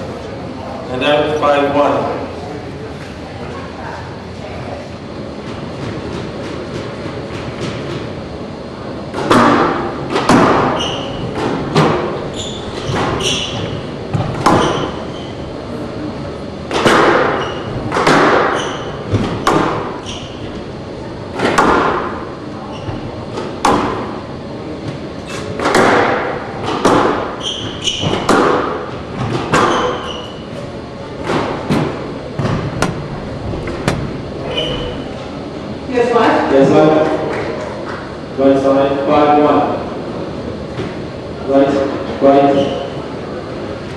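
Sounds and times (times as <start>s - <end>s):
squash ball hitting racquets and walls: 9.0s - 15.8s, 16.4s - 35.5s
shoe squeaks on court floor: 10.7s - 11.3s, 12.3s - 13.8s, 14.6s - 15.4s, 17.3s - 17.7s, 18.5s - 19.0s, 20.0s - 20.4s, 22.7s - 23.0s, 27.3s - 28.3s, 29.6s - 30.5s, 34.5s - 35.1s.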